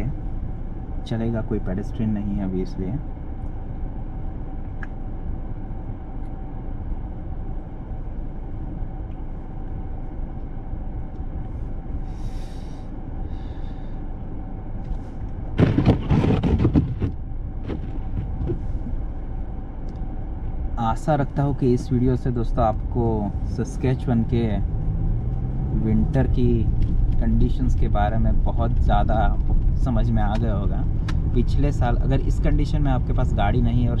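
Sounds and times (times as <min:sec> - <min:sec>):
faint whine: 0:00.0 - 0:34.0
car engine idling: 0:16.7 - 0:34.0.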